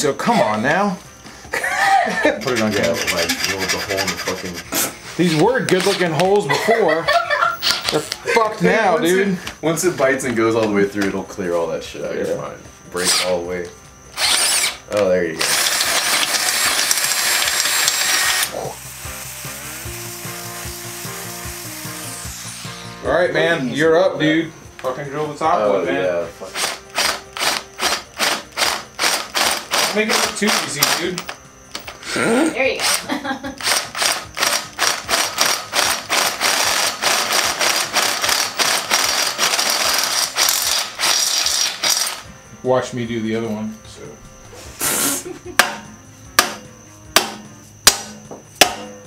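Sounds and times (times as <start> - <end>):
background music with steady beat: 0.0 - 49.0
power drill whining through metal: 5.2 - 6.2, 13.0 - 13.4, 14.1 - 22.9, 26.6 - 42.3.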